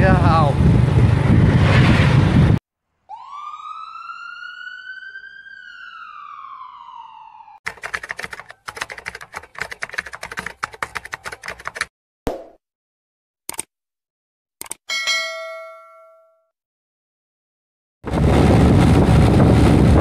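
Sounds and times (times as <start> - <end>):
vehicle road noise: 0.4 - 2.6
siren-like whistling tone: 3.1 - 7.6
rapid keyboard typing: 7.6 - 11.9.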